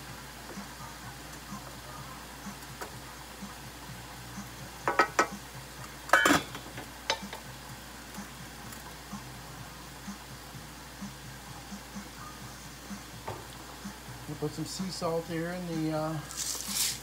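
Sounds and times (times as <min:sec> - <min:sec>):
pot lid clattering onto saucepan: 0:04.9 - 0:05.3, 0:06.1 - 0:07.4
cookware taps: 0:04.9 - 0:05.4.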